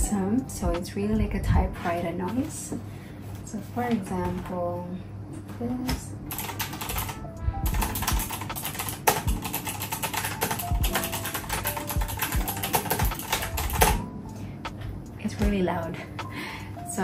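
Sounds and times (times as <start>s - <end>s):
fast keyboard typing clacks: 6.3s - 14.1s.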